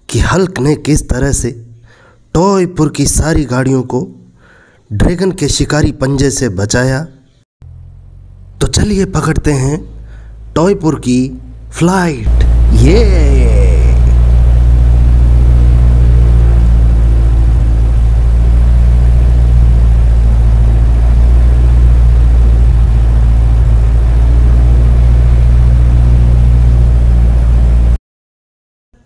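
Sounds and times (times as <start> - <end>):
aircraft engines droning: 11.5 - 28.0.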